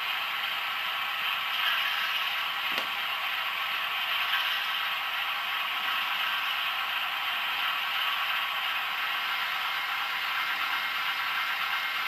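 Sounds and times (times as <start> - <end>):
diesel engine through small speaker: 0.0 - 12.0.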